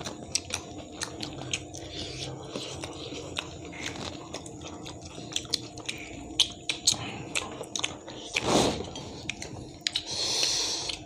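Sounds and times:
people chewing: 0.0s - 11.0s
wet mouth clicks and smacks: 9.3s - 11.0s.

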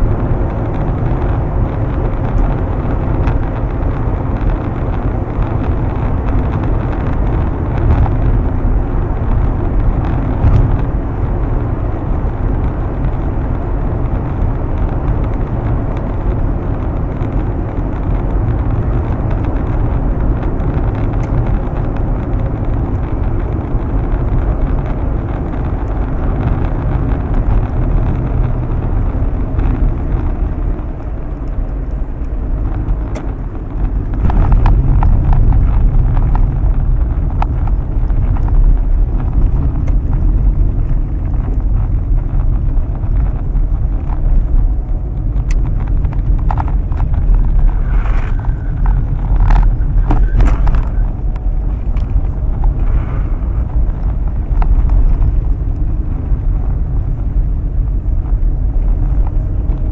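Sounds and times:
car cabin road rumble: 0.0s - 59.9s.

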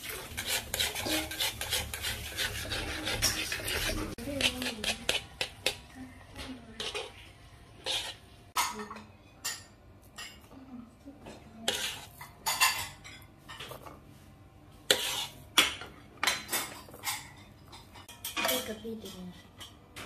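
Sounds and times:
steel spoon scraping metal pan: 0.0s - 5.8s, 6.7s - 7.2s, 7.8s - 8.6s, 11.6s - 13.0s, 14.9s - 15.4s.

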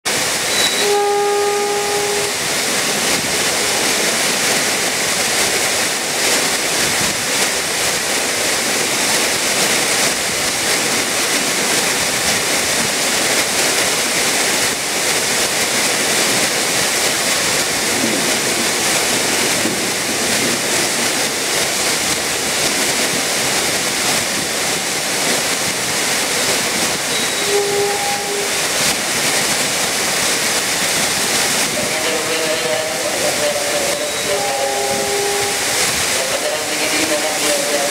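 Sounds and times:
heavy rain pouring: 0.1s - 37.9s
train horn: 0.5s - 2.6s, 27.1s - 28.9s, 31.8s - 37.8s.

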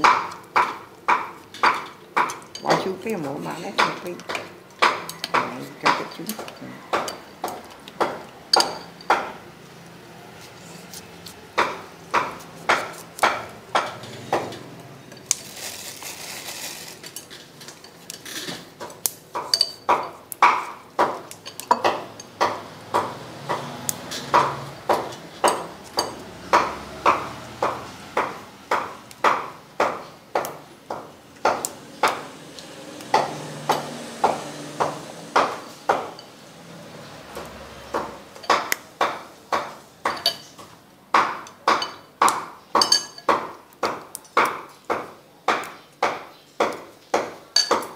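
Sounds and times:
metal spoon clinking on ceramic: 19.5s - 20.2s, 21.4s - 22.3s, 42.8s - 43.3s.

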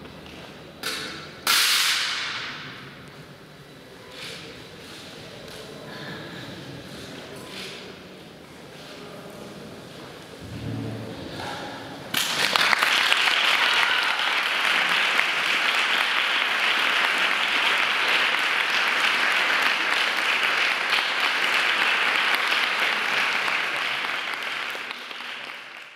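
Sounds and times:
audience applauding: 12.1s - 25.9s.

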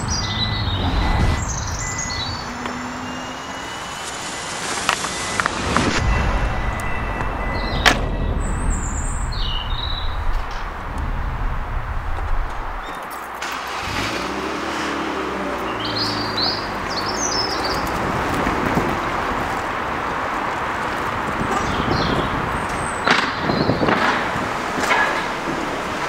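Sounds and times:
birds chirping: 0.0s - 14.4s, 15.0s - 24.4s
traffic hum: 0.0s - 26.0s.

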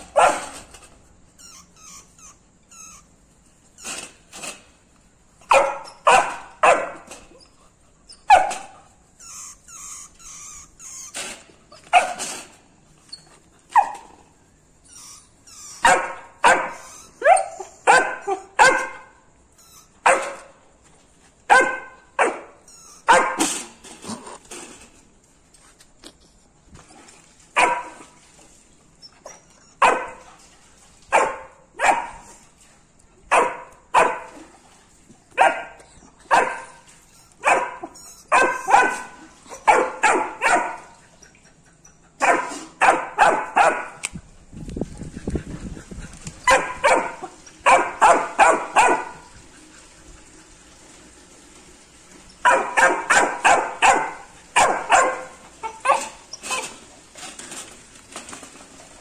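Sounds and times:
puppy barking: 0.0s - 0.6s, 5.4s - 7.1s, 8.3s - 8.8s, 11.9s - 12.2s, 15.8s - 19.2s, 20.0s - 20.6s, 21.5s - 23.5s, 27.6s - 28.1s, 29.8s - 30.2s, 31.1s - 32.3s, 33.3s - 34.4s, 35.4s - 36.8s, 37.4s - 41.0s, 42.2s - 44.0s, 46.4s - 49.2s, 52.4s - 56.6s.

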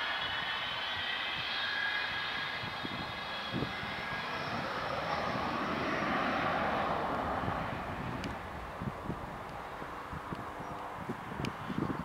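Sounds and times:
high whistling tones: 0.0s - 5.2s
rushing noise: 0.0s - 11.4s
jet engines whining: 0.0s - 12.0s.

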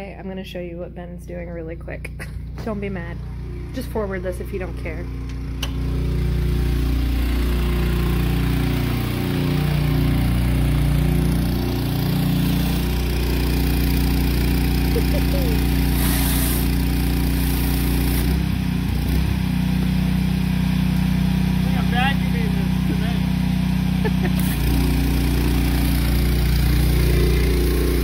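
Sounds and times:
small engine running: 1.6s - 28.0s
water spraying on concrete: 6.6s - 19.0s, 22.8s - 28.0s.

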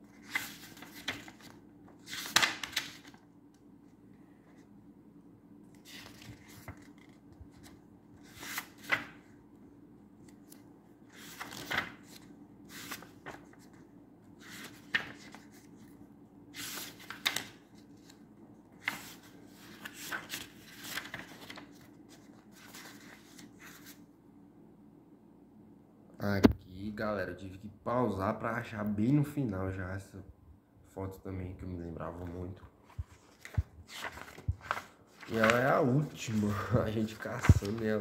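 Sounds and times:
book pages turning: 0.0s - 3.2s, 5.7s - 9.4s, 10.2s - 16.0s, 16.6s - 24.0s, 32.2s - 38.0s.

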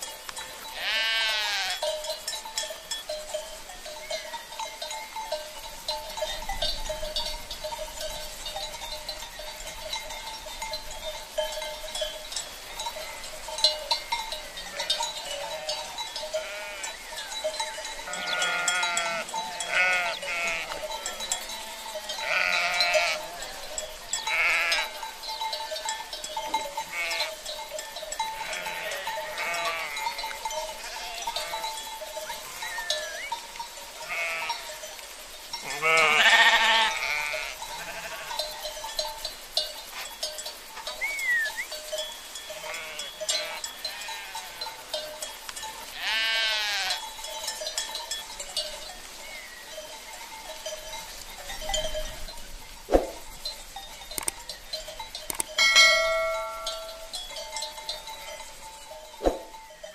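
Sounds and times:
sheep bleating: 0.8s - 1.8s, 14.6s - 17.0s, 18.1s - 23.6s, 24.3s - 25.0s, 26.8s - 27.4s, 28.4s - 31.7s, 34.0s - 34.6s, 35.6s - 38.4s, 42.6s - 44.6s, 46.0s - 47.0s.

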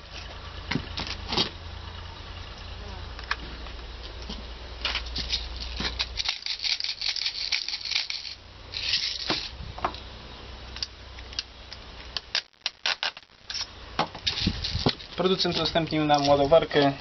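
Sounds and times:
plastic pellets clicking and rattling: 5.2s - 9.5s.

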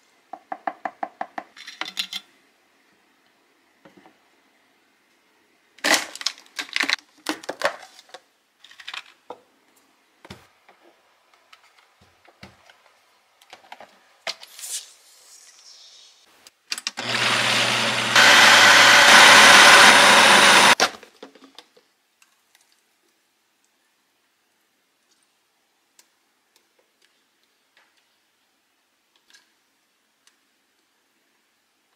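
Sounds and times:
countertop blender running: 17.0s - 20.9s.

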